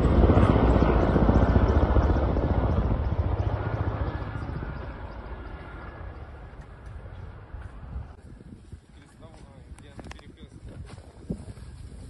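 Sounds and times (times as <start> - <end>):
helicopter rotor beat: 0.0 - 8.2.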